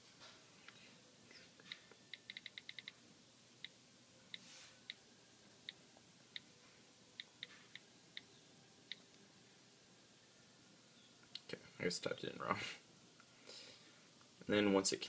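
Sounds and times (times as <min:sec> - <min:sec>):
phone keyboard clicks: 0:01.7 - 0:03.0.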